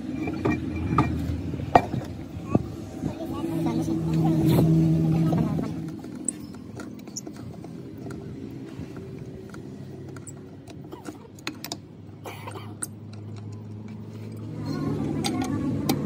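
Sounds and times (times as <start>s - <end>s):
wheel brace clicking on nuts: 5.7s - 16.0s.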